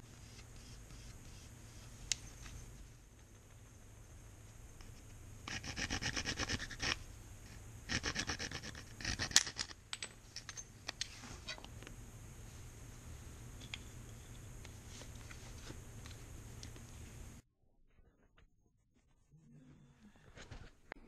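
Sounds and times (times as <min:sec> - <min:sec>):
bamboo tool scraping soapstone: 0:04.8 - 0:07.0, 0:07.9 - 0:09.7.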